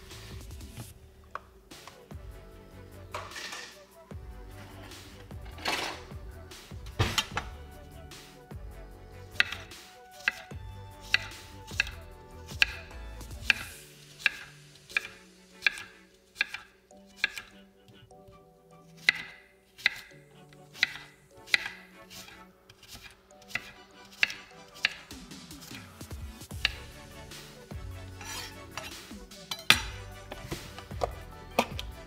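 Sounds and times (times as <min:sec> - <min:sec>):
knife chopping on work surface: 0:09.4 - 0:12.8, 0:13.4 - 0:17.6, 0:19.0 - 0:20.1, 0:20.8 - 0:25.8, 0:26.6 - 0:26.9.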